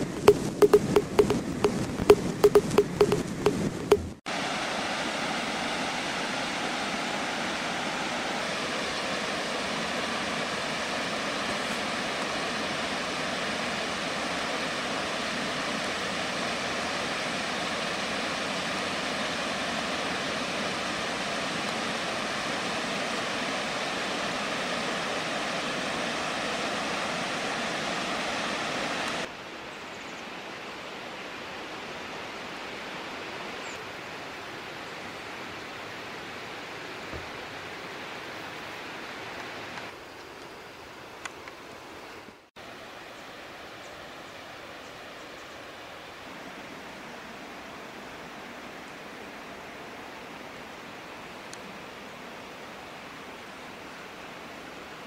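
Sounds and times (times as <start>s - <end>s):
waterfall rushing: 0.0s - 29.3s.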